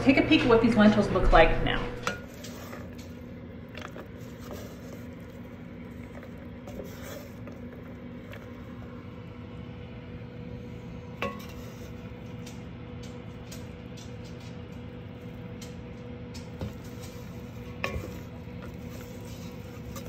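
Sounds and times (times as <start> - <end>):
steady low hum: 0.0 - 20.0
wooden spoon scraping pot: 2.1 - 9.1, 11.2 - 12.5, 16.4 - 20.0.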